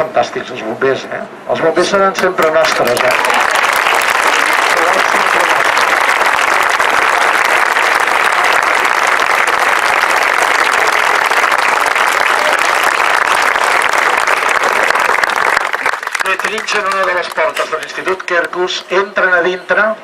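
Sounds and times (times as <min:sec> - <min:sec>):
crowd applauding: 0:02.3 - 0:18.6.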